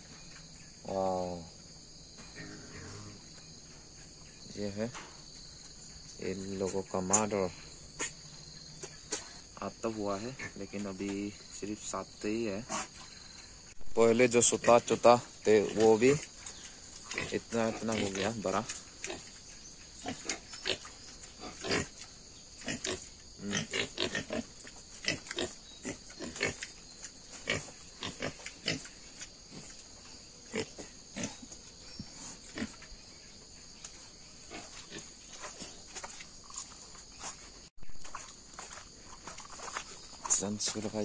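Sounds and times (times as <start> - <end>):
pigs grunting: 2.3 - 3.3, 12.5 - 13.0, 17.0 - 19.3, 20.0 - 22.0, 22.6 - 29.8, 30.5 - 32.8.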